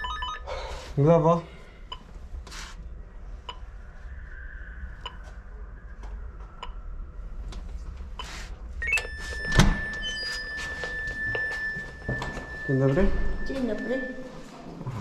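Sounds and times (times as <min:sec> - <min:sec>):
door intercom calling: 0:08.8 - 0:14.6.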